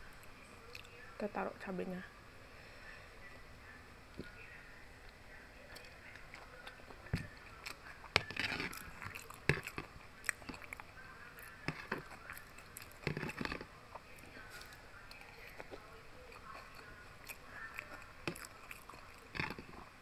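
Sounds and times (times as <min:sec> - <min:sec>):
wet chewing and mouth clicks: 0:05.1 - 0:20.0
metal spoon scraping plastic container: 0:08.1 - 0:10.6, 0:12.8 - 0:13.7.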